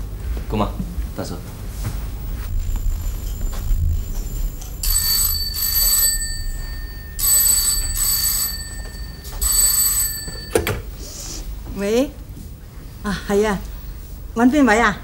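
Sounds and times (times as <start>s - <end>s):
telephone bell ringing: 2.9s - 11.0s.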